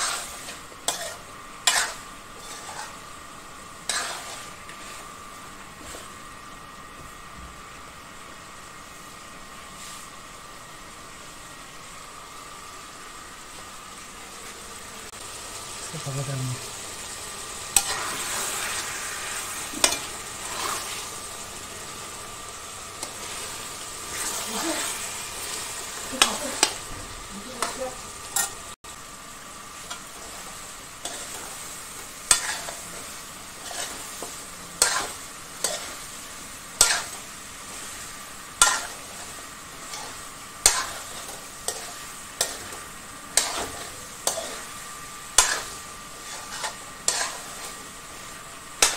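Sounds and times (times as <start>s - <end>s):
spoon scraping and knocking pan: 0.0s - 3.0s, 3.9s - 4.9s, 32.3s - 33.0s, 33.6s - 36.0s, 36.8s - 37.2s, 38.6s - 42.8s, 43.4s - 44.7s, 45.3s - 47.8s
meat sizzling in a pan: 0.0s - 48.9s.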